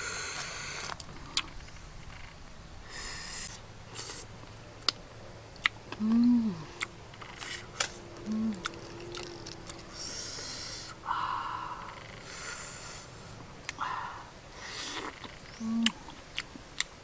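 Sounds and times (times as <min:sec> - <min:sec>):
person humming mmm: 0:05.9 - 0:06.9, 0:08.2 - 0:09.3, 0:13.7 - 0:16.2.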